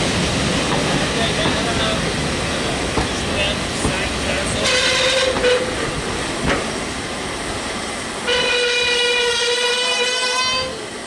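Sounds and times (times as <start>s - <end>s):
train wheels clicking over rail joints: 0.2s - 9.7s
steam locomotive whistle: 4.6s - 5.8s, 8.2s - 10.9s.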